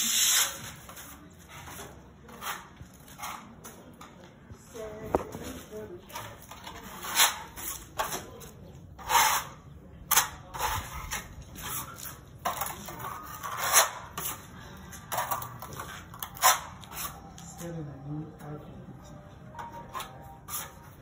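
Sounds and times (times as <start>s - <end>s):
trowel scraping plaster on wall: 0.0s - 3.7s, 6.1s - 17.2s, 19.6s - 21.0s.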